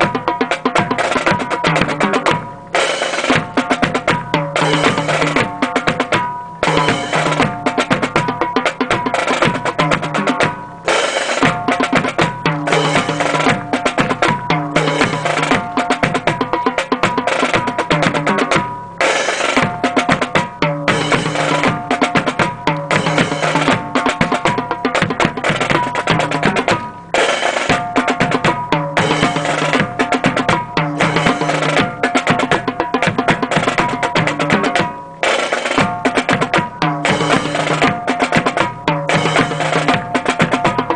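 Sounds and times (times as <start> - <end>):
drum-led music with snare rolls: 0.0 - 40.9.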